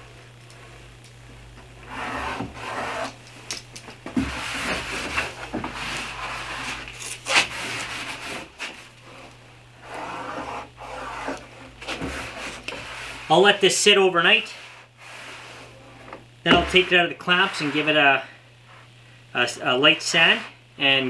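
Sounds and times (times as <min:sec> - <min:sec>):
cloth rag rubbing on wood: 0:04.2 - 0:18.9, 0:19.6 - 0:20.6.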